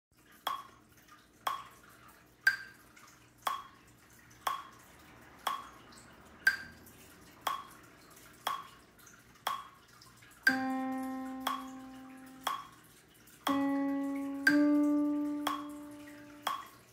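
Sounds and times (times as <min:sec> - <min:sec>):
metronome clicking: 0:06.4 - 0:06.7, 0:10.4 - 0:12.8, 0:13.4 - 0:16.7
sustained pitched note: 0:10.5 - 0:12.5, 0:13.5 - 0:16.5.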